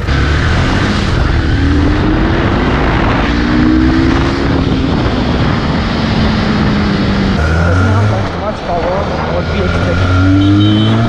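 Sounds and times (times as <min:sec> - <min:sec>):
wind rush on microphone: 0:00.0 - 0:07.4.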